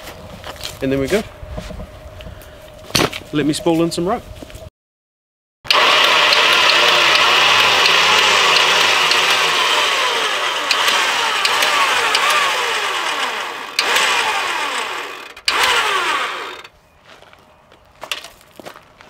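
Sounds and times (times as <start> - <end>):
electric winch whirring: 5.7 - 16.7.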